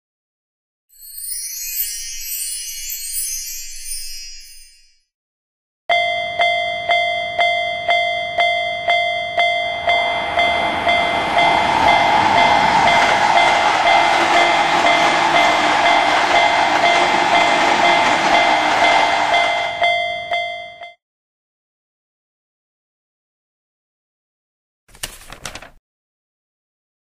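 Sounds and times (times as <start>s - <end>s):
railroad crossing bell ringing: 1.0s - 4.9s, 5.9s - 21.0s
train passing rumble: 9.6s - 20.0s.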